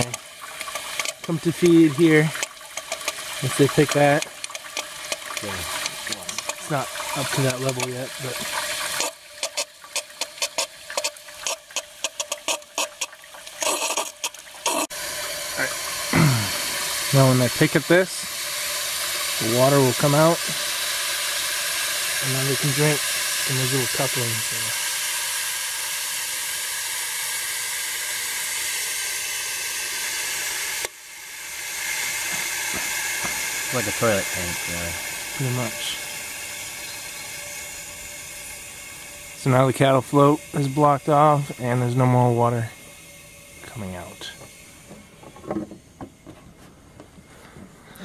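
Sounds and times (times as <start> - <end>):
water splashing: 0.0 - 24.7
water spraying into bucket: 0.0 - 46.3.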